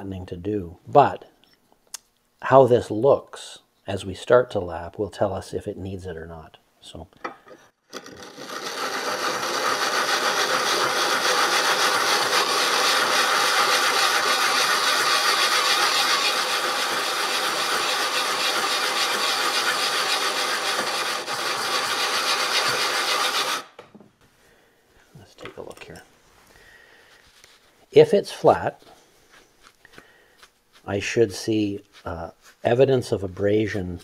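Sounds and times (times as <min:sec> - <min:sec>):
metal gritty scraping on glass: 0:07.9 - 0:13.0.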